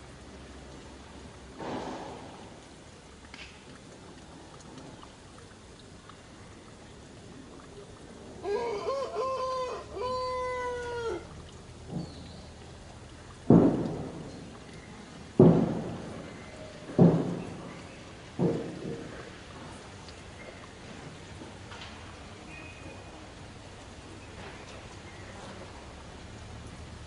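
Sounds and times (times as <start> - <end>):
steady noisy hiss: 0.0 - 27.0
rooster crowing: 8.4 - 11.3
loud thumps: 13.5 - 14.6, 15.3 - 17.8.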